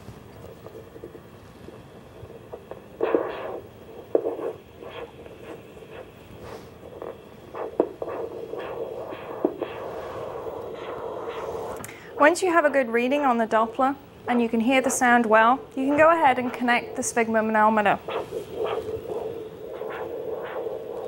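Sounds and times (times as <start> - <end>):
steady hum: 0.0 - 21.0
doppler pulsing: 15.6 - 21.0.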